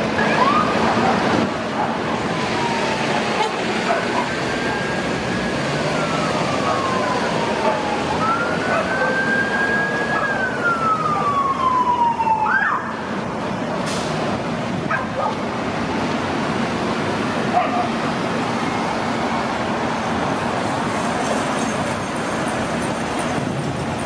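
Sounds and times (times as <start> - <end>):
traffic noise: 0.0 - 24.0
electronic siren wailing: 2.0 - 13.0.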